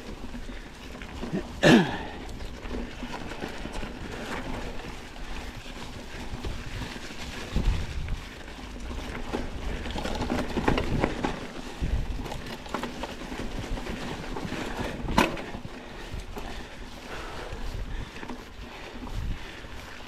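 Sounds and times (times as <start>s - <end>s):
bike clicks and rattles: 0.0s - 20.0s
bike tyres rolling over dry leaves: 0.0s - 20.0s.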